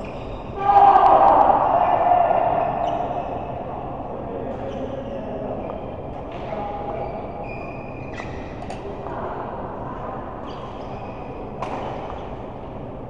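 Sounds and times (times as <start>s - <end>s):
shoe squeaks: 0.0s - 0.6s, 4.6s - 6.0s, 6.9s - 8.6s, 10.4s - 11.4s
hall noise: 0.0s - 7.9s
racket hits: 11.6s - 12.2s.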